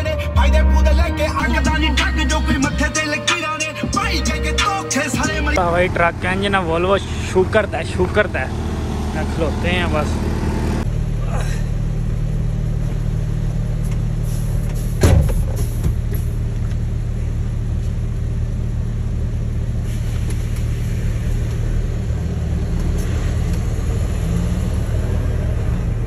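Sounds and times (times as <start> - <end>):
diesel engine idling: 0.0 - 26.0
loud thud: 15.0 - 16.0.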